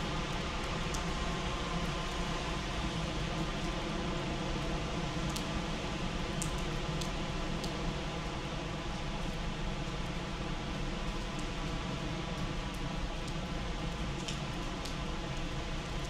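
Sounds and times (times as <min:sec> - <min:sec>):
heavy rain on pavement: 0:00.0 - 0:16.0
sharp drip ticks: 0:06.4 - 0:07.8.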